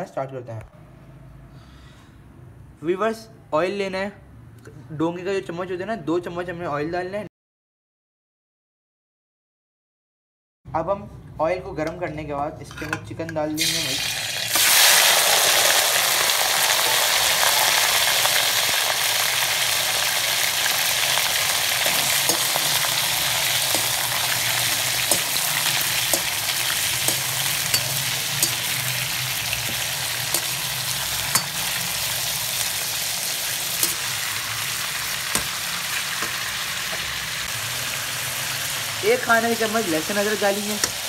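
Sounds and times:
chicken sizzling in hot oil: 13.6 - 41.0
metal spatula scraping pan: 21.8 - 37.4.

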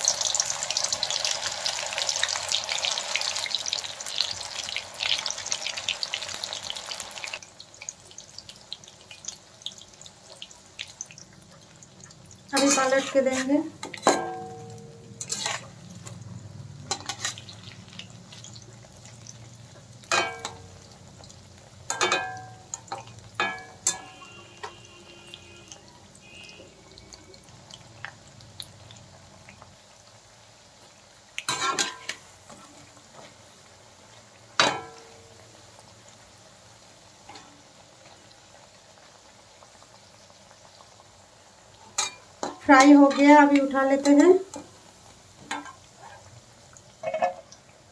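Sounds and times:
oil sizzling: 0.0 - 47.9
metal spatula clanking on a pan: 12.6 - 15.7, 16.9 - 17.4, 20.0 - 20.7, 21.9 - 24.8, 31.5 - 32.2, 34.6 - 35.2, 41.9 - 43.4, 45.5 - 45.8.

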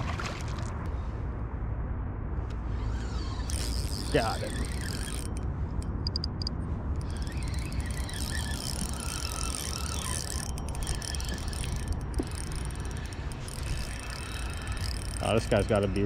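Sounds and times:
fishing reel cranking: 2.8 - 16.0.

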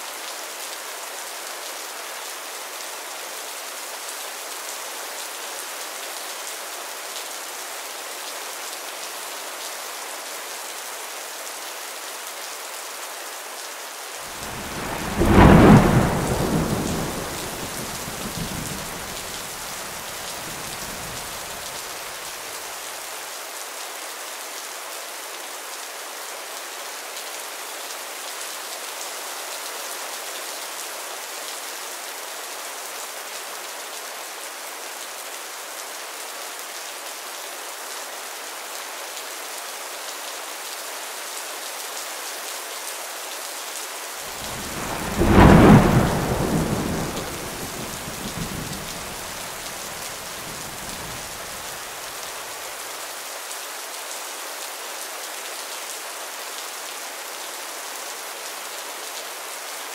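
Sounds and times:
steady rain falling: 0.0 - 59.9
thunder rumbling: 14.4 - 21.6, 44.3 - 51.9.

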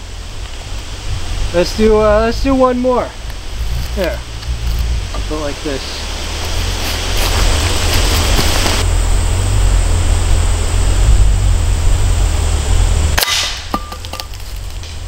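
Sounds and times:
loud low rumble and hiss: 0.0 - 15.0
footsteps crunching through dry leaves: 3.2 - 8.9, 14.0 - 15.0.

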